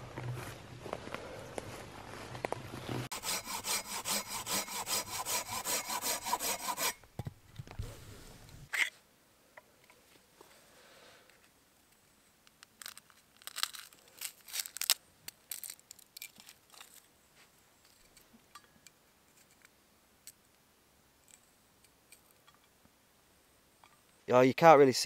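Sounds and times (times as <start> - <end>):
dry papery crackles: 12.5 - 17.0.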